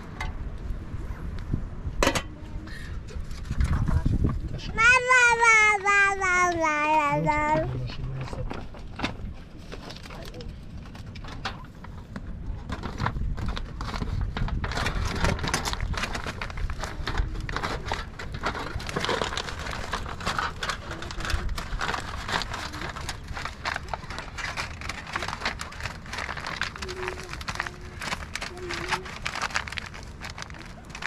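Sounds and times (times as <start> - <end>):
aluminium foil crinkling: 12.6 - 31.0.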